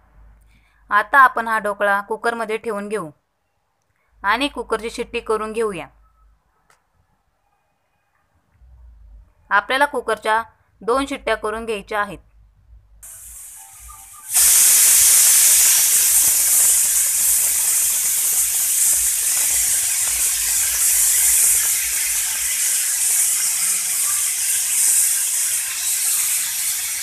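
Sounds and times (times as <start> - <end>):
pressure cooker steam hissing: 13.0 - 27.0.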